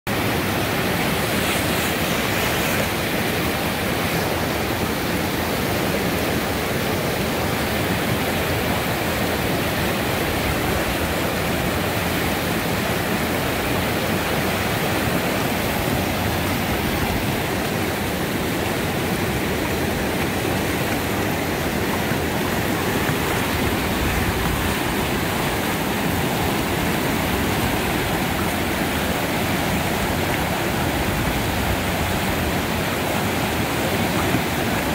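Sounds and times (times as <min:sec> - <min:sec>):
river rapids rushing over boulders: 0:00.1 - 0:34.9.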